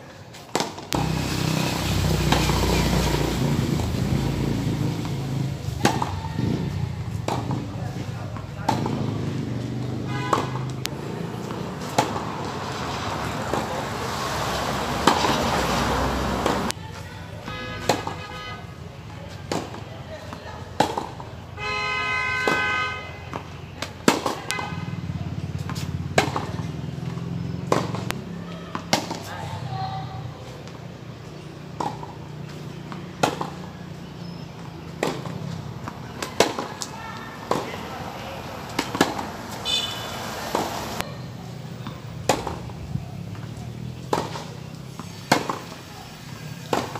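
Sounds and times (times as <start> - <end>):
tennis balls struck by rackets: 0.3 - 1.3, 2.0 - 16.8, 17.8 - 21.6, 22.4 - 41.2, 41.8 - 46.9
tennis ball pops: 0.5 - 1.1, 25.6 - 26.7, 38.7 - 39.3, 41.8 - 42.7, 43.3 - 44.5, 45.3 - 45.8.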